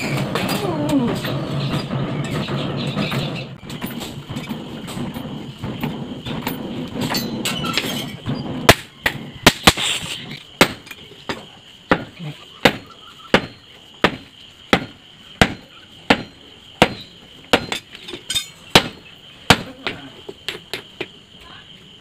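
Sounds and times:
forge fire rushing: 0:00.0 - 0:10.3.

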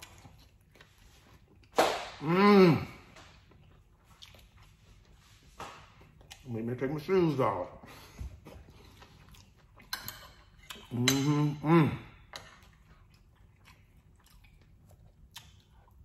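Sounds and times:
person chewing: 0:00.0 - 0:06.7, 0:07.9 - 0:16.0
person humming mmm: 0:02.2 - 0:03.1, 0:10.9 - 0:12.1.

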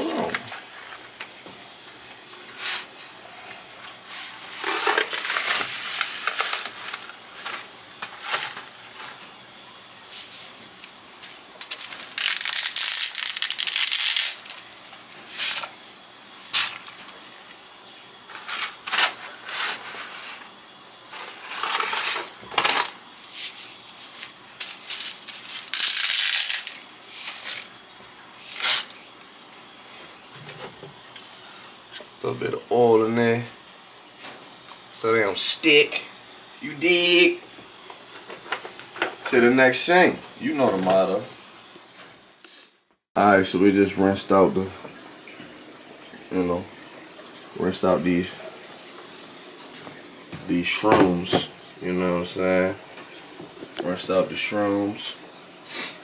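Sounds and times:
packaging rustling: 0:10.8 - 0:15.7, 0:23.9 - 0:27.6.

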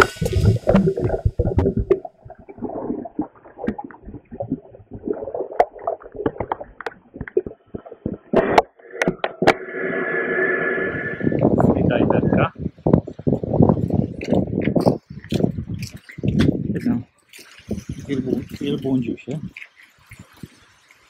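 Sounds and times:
camera knocking in water: 0:00.0 - 0:09.6
sea water sloshing and gurgling: 0:00.0 - 0:11.4, 0:13.0 - 0:21.0.

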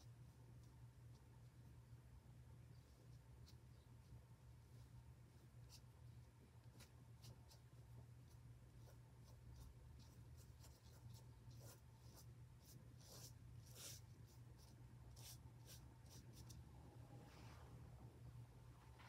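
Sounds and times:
low steady hum: 0:00.0 - 0:19.0
ink brush scratching on paper: 0:02.7 - 0:16.6.

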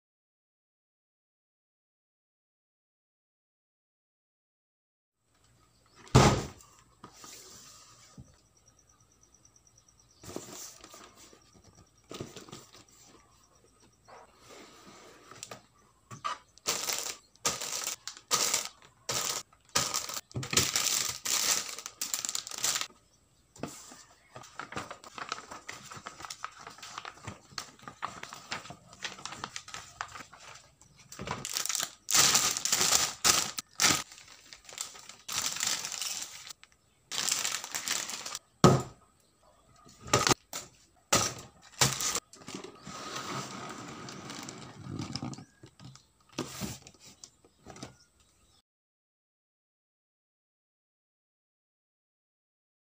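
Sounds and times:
paper booklet rustling: 0:16.6 - 0:22.9, 0:23.6 - 0:38.4, 0:40.2 - 0:42.7
plastic bags crinkling: 0:16.6 - 0:22.9, 0:24.5 - 0:38.4, 0:41.2 - 0:42.6.

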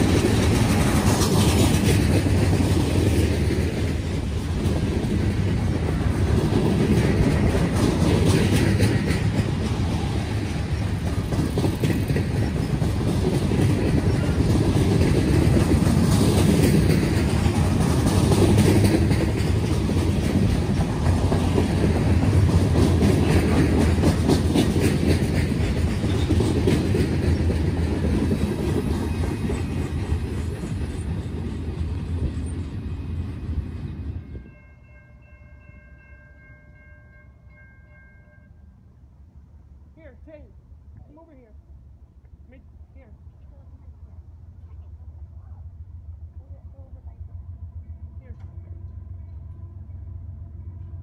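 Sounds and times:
wheels clicking over rail joints: 0:00.0 - 0:34.6
freight train rumbling past: 0:00.0 - 0:51.0.

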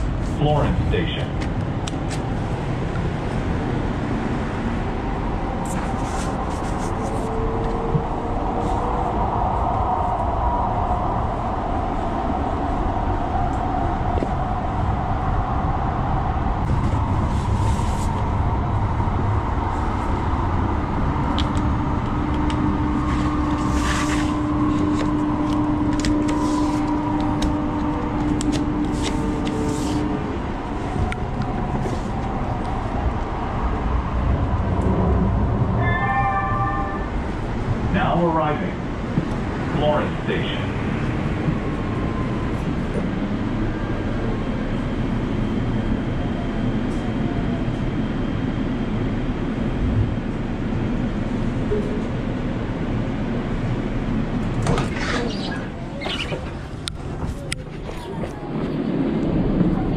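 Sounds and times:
train wheels rumbling on rails: 0:00.0 - 0:59.9
steady tone: 0:18.2 - 0:38.8.

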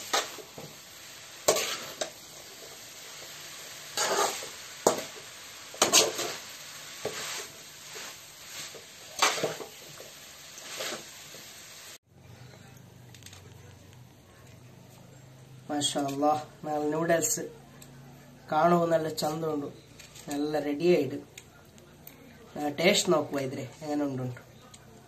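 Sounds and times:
food sizzling: 0:00.0 - 0:12.1, 0:15.0 - 0:25.0
spatula scraping metal pan: 0:01.4 - 0:02.2, 0:03.9 - 0:09.8.

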